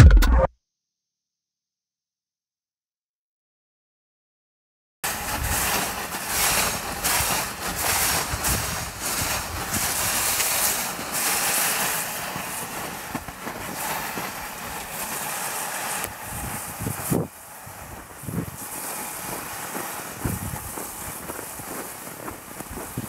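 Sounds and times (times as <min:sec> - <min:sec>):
sled runners hissing on snow: 0:05.0 - 0:23.0
snow crunching underfoot: 0:05.0 - 0:23.0.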